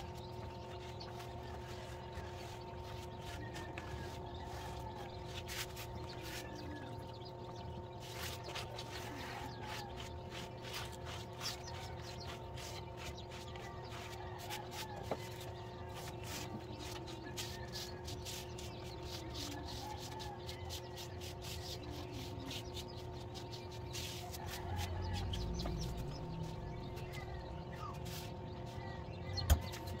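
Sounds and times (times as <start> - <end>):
steady hum with tones: 0.0 - 30.0
sponge scrubbing: 0.8 - 7.0, 8.0 - 28.9
faint chirping: 15.6 - 30.0.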